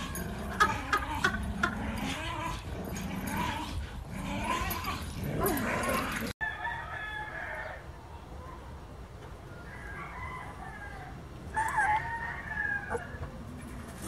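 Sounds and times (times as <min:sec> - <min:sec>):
dogs yipping and barking: 0:00.0 - 0:06.4, 0:11.5 - 0:14.0.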